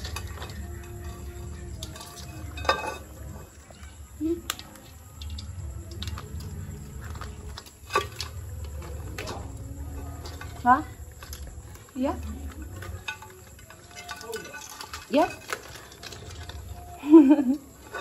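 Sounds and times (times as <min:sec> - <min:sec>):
pot lid clanking and scraping: 0:00.0 - 0:03.8
crabs scrabbling against metal: 0:00.0 - 0:18.0.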